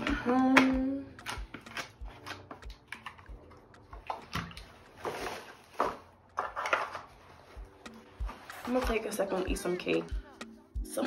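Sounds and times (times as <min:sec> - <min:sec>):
plastic bottle clicks and rustles: 0:00.0 - 0:07.1
water sloshing in plastic bottle: 0:01.2 - 0:07.1
faint low thumping beat: 0:07.6 - 0:11.0.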